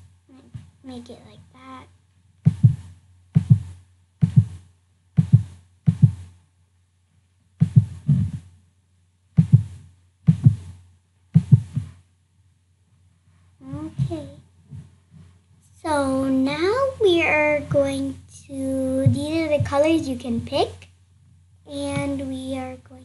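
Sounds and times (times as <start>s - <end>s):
low hum: 2.4s - 6.4s, 7.6s - 8.6s, 9.3s - 12.0s
dull thumps with hiss: 2.5s - 6.4s, 7.6s - 8.6s, 9.4s - 10.8s, 11.4s - 12.1s, 13.6s - 15.4s, 18.9s - 20.7s.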